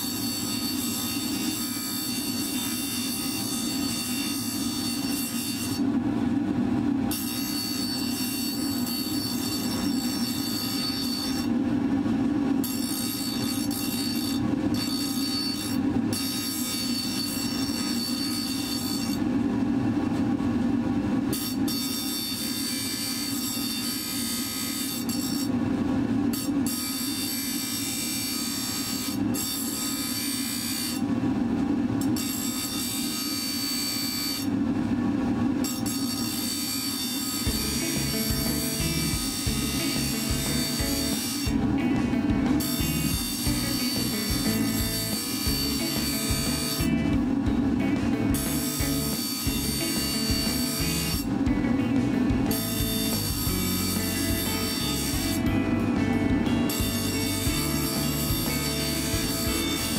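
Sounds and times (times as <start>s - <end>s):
steel grinding whine: 0.0s - 19.6s, 20.8s - 59.9s
bench grinder motor hum: 35.7s - 47.2s, 48.2s - 59.9s.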